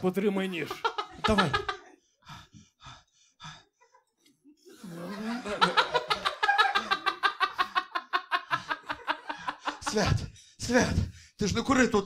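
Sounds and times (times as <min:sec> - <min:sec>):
audience laughing: 0:00.6 - 0:02.0, 0:04.7 - 0:10.1.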